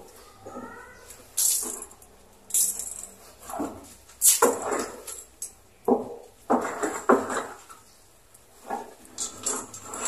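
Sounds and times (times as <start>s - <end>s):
cat crying: 0.3s - 1.1s.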